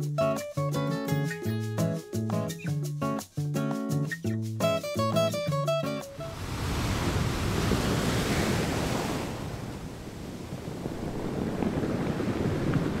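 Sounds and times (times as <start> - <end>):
ocean waves washing: 6.0 - 13.0.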